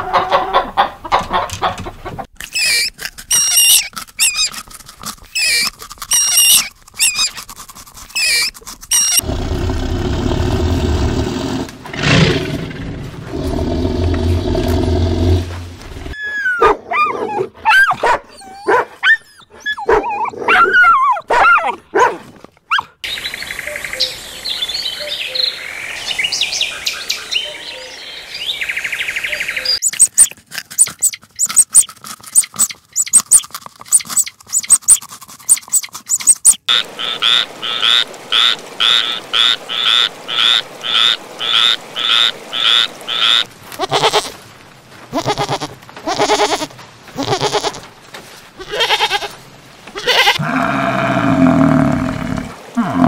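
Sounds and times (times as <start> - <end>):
goat bleating: 43.8 - 44.4, 45.1 - 47.9, 48.6 - 50.5.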